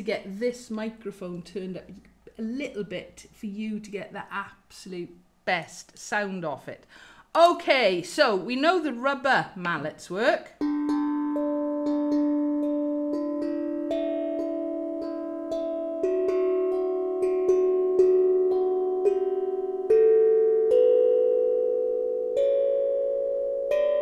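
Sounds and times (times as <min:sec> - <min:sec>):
steel tongue drum notes: 0:10.5 - 0:24.0.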